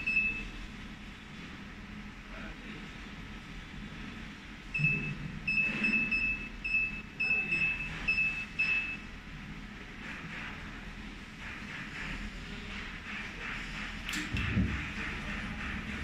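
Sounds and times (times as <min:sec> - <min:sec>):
short high beeps: 0:00.0 - 0:00.5, 0:04.8 - 0:09.0
steady low hum: 0:00.0 - 0:16.0.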